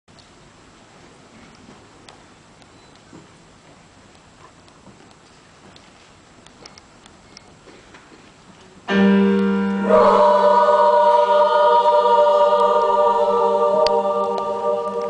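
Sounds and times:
women's choir singing a cappella: 9.7s - 15.0s.

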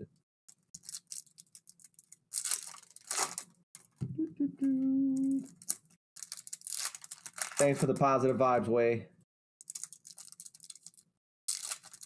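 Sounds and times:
foil wrappers tearing and crinkling: 0.7s - 4.0s, 5.4s - 8.1s, 9.6s - 12.0s
person humming: 4.0s - 5.5s.

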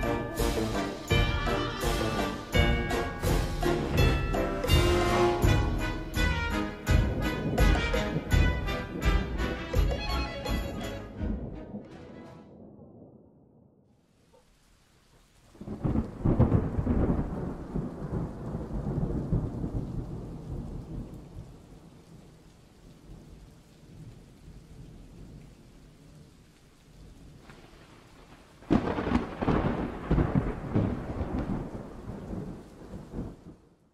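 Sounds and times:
rain hissing: 0.0s - 11.9s, 13.9s - 33.9s
sudden thunderclap: 0.0s - 11.9s, 12.5s - 13.9s, 15.6s - 21.6s, 28.6s - 33.7s
thunder rolling: 0.0s - 14.0s, 15.5s - 22.2s, 27.4s - 33.8s.

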